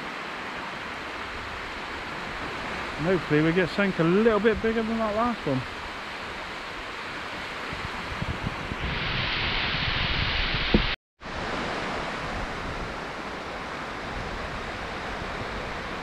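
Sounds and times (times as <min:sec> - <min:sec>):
surf rushing on beach: 0:00.0 - 0:16.0
wind noise on microphone: 0:05.8 - 0:16.0
bright hiss: 0:08.8 - 0:11.0.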